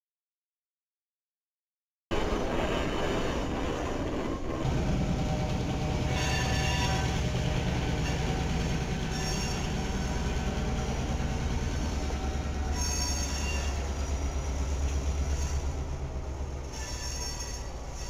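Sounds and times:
diesel locomotive engine droning: 2.1s - 18.0s
train wheels squealing: 2.5s - 18.0s.

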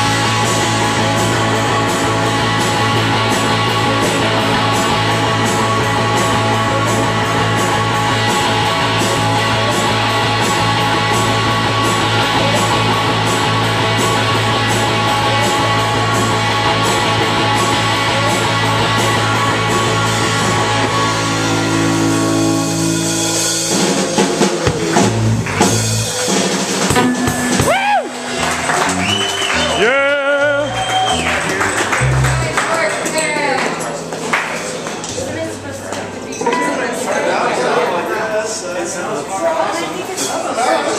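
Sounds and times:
drum kit beat: 0.0s - 33.0s
electric guitar: 0.0s - 36.1s
live rock band playing: 0.0s - 36.3s
cymbal crashes: 26.7s - 28.3s.

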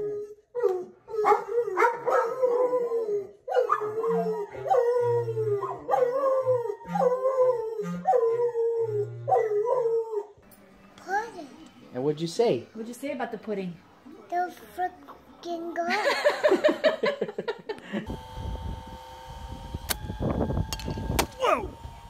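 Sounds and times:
dogs howling: 0.0s - 10.4s.

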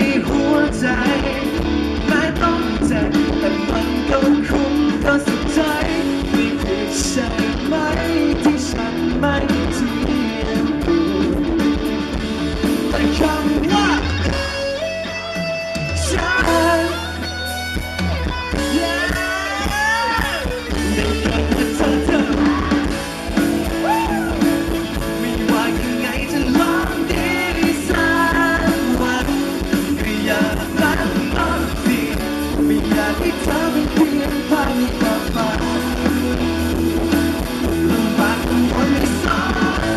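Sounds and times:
man singing: 0.0s - 11.9s, 12.6s - 14.6s, 15.8s - 17.6s, 18.5s - 23.0s, 23.7s - 39.9s
drums: 0.0s - 39.9s
electric guitar: 0.0s - 39.9s
live rock band: 0.0s - 39.9s.

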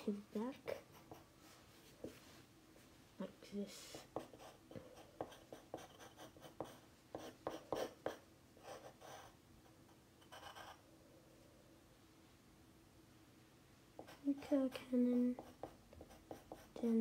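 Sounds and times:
pencil scratching on paper: 0.0s - 2.2s, 3.7s - 10.8s, 14.0s - 17.0s.

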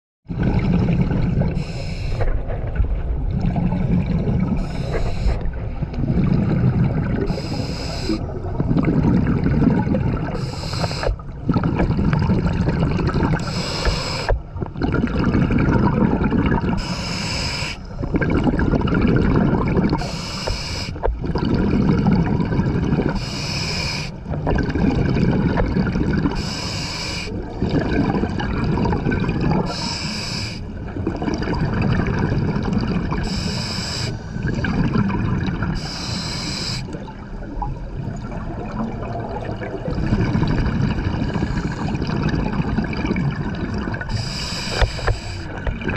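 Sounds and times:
exhaled air bubbling: 0.3s - 45.9s
regulator inhalation hiss: 1.6s - 2.3s, 4.6s - 5.5s, 7.3s - 8.2s, 10.4s - 11.1s, 13.4s - 14.4s, 16.8s - 17.9s, 20.0s - 21.1s, 23.2s - 24.2s, 26.4s - 27.4s, 29.7s - 30.7s, 33.2s - 34.3s, 35.8s - 36.9s, 44.1s - 45.5s.

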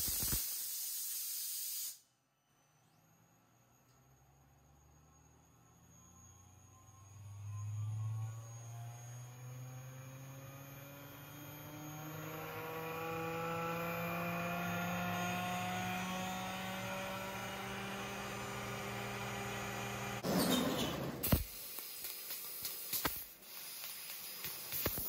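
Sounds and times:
loud air hiss: 0.0s - 2.1s
air compressor motor whining: 2.5s - 21.6s.

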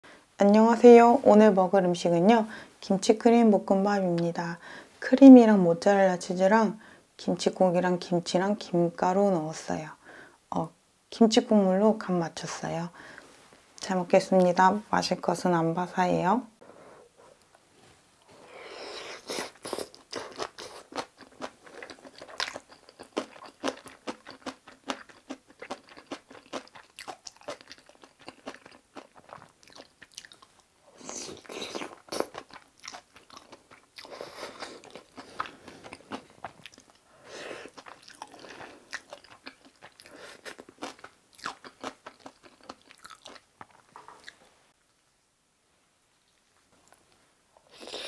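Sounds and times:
person chewing food: 18.9s - 44.5s.

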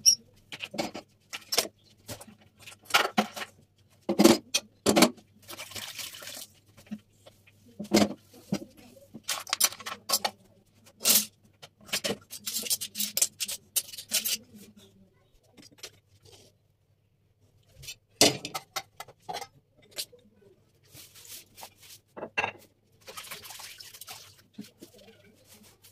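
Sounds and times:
kitchen utensils knocking and clattering: 2.8s - 5.2s, 18.2s - 20.0s, 22.2s - 22.7s.

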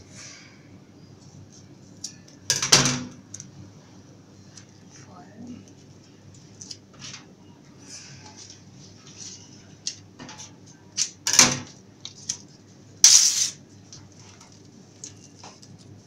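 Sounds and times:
ribbon rustling and crinkling: 13.9s - 16.0s.

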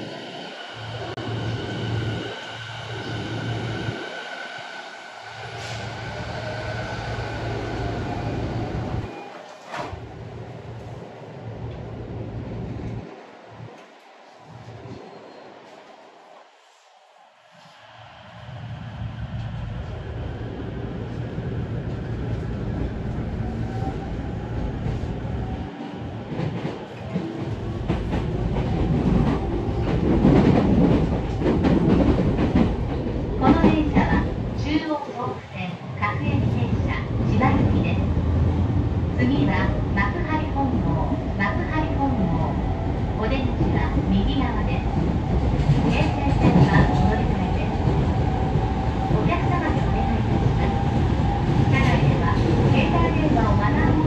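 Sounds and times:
train moving on adjacent track: 0.0s - 54.0s
sliding train doors closing: 5.4s - 11.0s.

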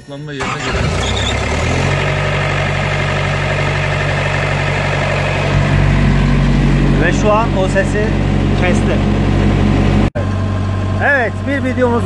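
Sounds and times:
refrigeration unit engine and fan: 0.4s - 12.0s
low hum: 1.9s - 12.0s.

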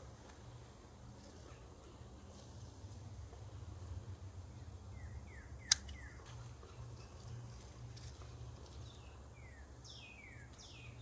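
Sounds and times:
birds chirping: 3.3s - 11.0s.

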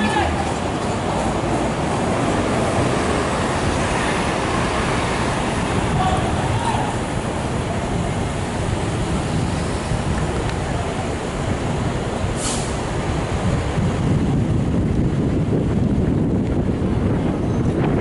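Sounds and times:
subway train low rumble: 0.0s - 18.0s
brief high hiss: 12.4s - 12.8s.

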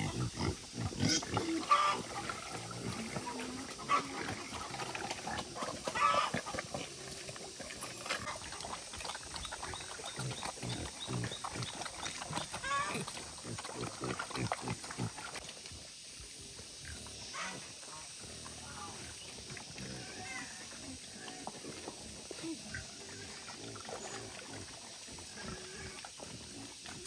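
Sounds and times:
boar grunting: 0.0s - 15.4s
wild boar squealing: 1.0s - 2.3s, 5.8s - 6.4s, 12.4s - 13.1s.

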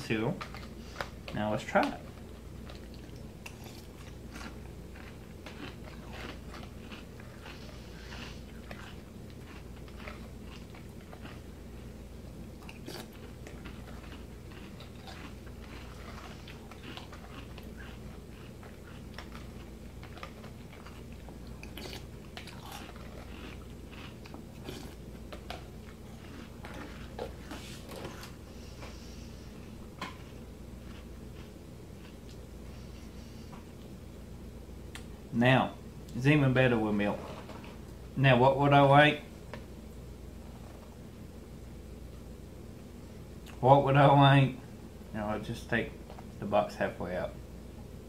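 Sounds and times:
person chewing crunchy cereal: 0.0s - 33.4s.

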